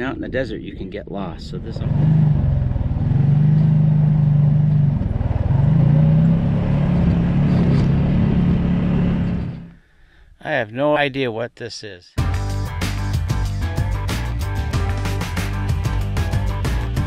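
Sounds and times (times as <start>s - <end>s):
quad engine running: 1.6s - 9.8s.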